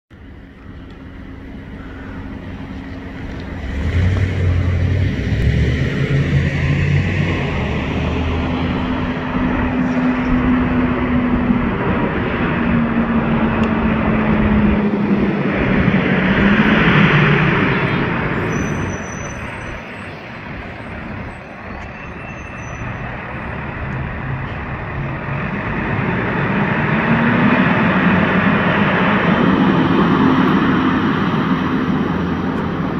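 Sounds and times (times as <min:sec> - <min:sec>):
bus driving past: 0:00.2 - 0:32.9.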